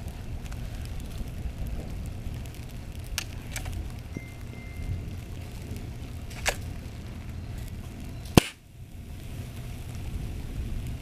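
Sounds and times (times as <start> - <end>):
sharp pops and cracks: 0.0 - 4.1, 5.1 - 8.7
batteries burning with rushing noise: 0.0 - 11.0.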